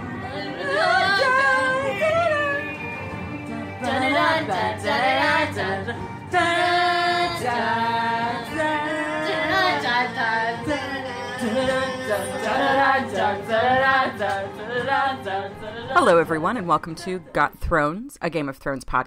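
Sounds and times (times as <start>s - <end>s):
woman singing: 0.2s - 17.4s.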